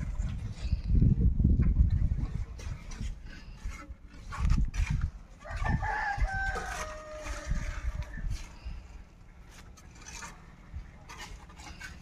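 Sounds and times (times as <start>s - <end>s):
low rumbles and thumps: 0.0s - 6.3s
rooster crowing: 5.4s - 8.0s.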